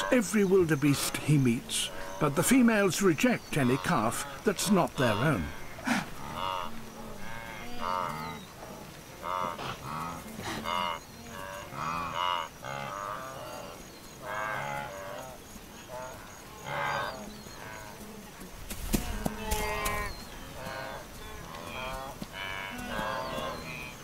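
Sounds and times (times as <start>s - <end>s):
wildebeest grunting calls: 0.0s - 18.2s, 19.0s - 24.0s.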